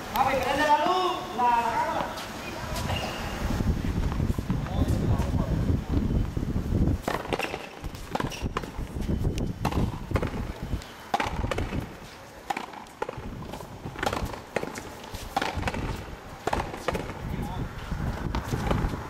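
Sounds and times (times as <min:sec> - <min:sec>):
rubber ball smacking rackets: 0:07.0 - 0:08.9, 0:09.6 - 0:17.2
ball hitting wall and floor: 0:07.1 - 0:08.8, 0:11.1 - 0:11.9, 0:12.5 - 0:17.2.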